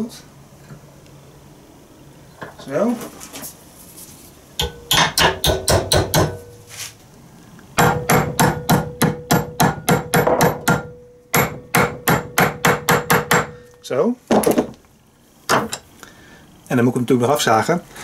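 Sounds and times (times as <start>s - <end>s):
hammer striking metal bracket: 4.6s - 6.6s, 7.8s - 13.6s
steady metallic ring: 4.6s - 6.7s, 10.7s - 11.5s.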